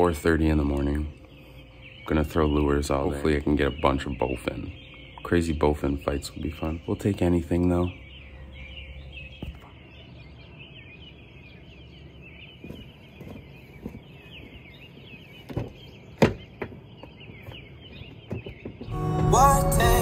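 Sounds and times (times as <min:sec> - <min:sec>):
birds chirping: 0:00.0 - 0:20.0
music with singing: 0:18.9 - 0:20.0.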